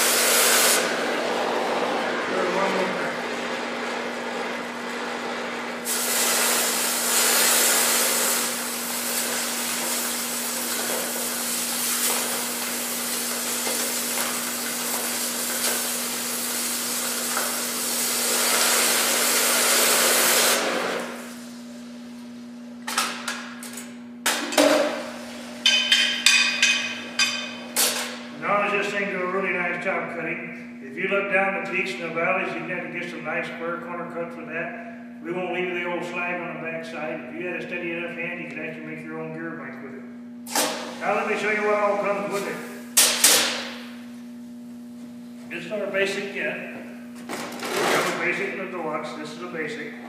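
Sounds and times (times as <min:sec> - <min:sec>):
cutting torch flame hissing: 0:00.0 - 0:01.0, 0:05.8 - 0:21.6
steel pieces knocking and clinking: 0:25.7 - 0:27.6.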